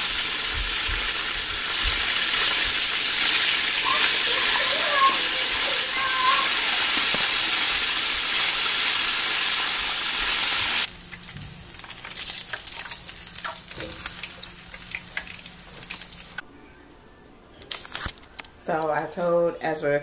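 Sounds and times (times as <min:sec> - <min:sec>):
chicken sizzling in hot oil: 0:00.0 - 0:11.0, 0:11.7 - 0:16.4.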